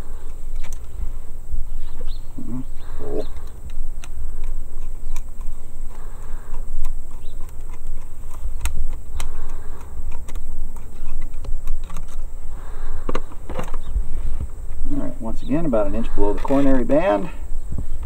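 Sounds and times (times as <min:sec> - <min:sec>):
wind rumble on microphone: 0:16.7 - 0:18.0.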